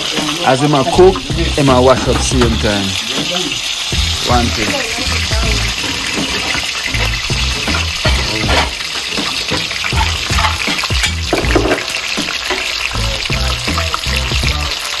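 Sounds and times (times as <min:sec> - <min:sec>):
food sizzling in hot oil: 0:00.0 - 0:15.0
music with stepping bass line: 0:01.0 - 0:02.8, 0:03.9 - 0:05.8, 0:07.0 - 0:08.7, 0:09.9 - 0:14.8.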